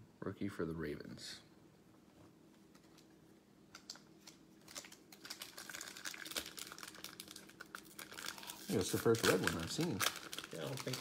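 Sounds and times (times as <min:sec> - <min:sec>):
foil card pack crinkling: 0:04.2 - 0:11.0.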